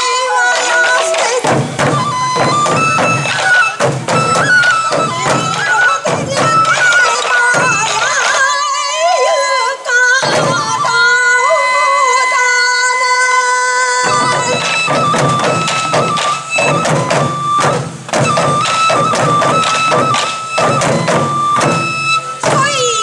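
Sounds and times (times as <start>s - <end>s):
bamboo flute melody: 0.0s - 23.0s
taiko drums striking fast: 0.3s - 8.5s, 10.2s - 11.1s, 14.0s - 23.0s.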